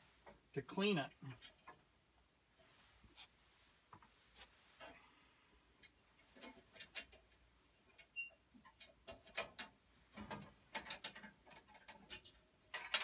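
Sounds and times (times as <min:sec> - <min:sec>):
small metal parts clicking and scraping: 0:01.1 - 0:01.9, 0:05.8 - 0:13.0.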